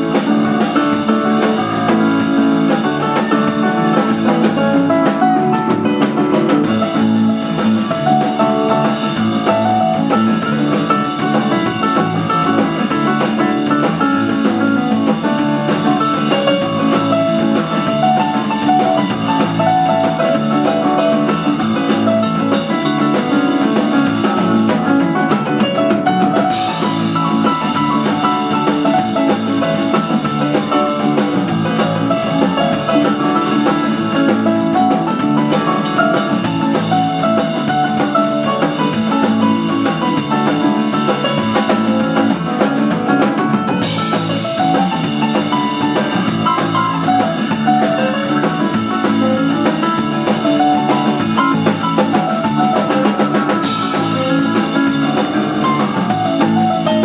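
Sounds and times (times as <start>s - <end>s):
drum kit: 0.0s - 57.0s
electric bass: 0.0s - 57.0s
electric guitar: 0.0s - 57.0s
piano: 0.0s - 57.0s.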